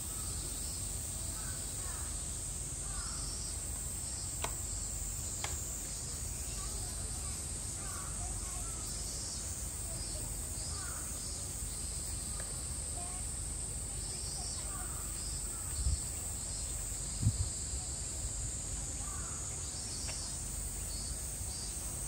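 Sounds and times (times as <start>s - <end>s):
cicada chorus drone: 0.0s - 22.0s
pulsing insect song: 0.0s - 22.0s
faint distant calls: 2.8s - 4.8s, 6.2s - 13.2s, 18.8s - 22.0s.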